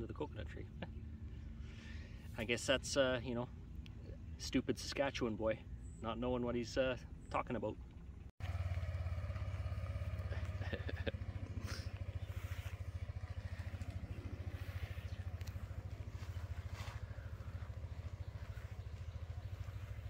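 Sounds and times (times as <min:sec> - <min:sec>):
motor scooter engine idling: 0:08.0 - 0:20.0.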